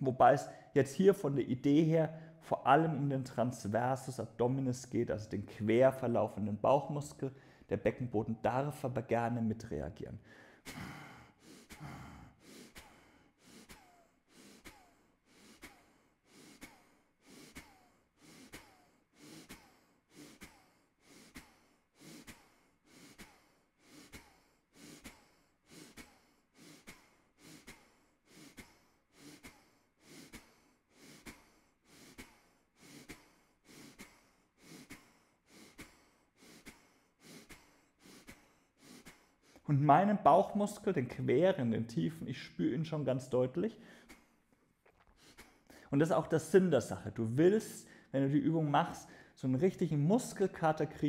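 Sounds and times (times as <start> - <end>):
man's sharp breath puffs: 10.2 - 39.7, 43.8 - 45.9.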